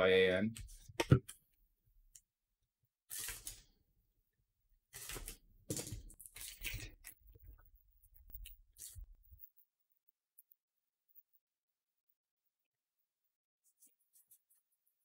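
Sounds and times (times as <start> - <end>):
box cutter slicing shrink wrap: 3.1 - 3.6, 4.9 - 5.4.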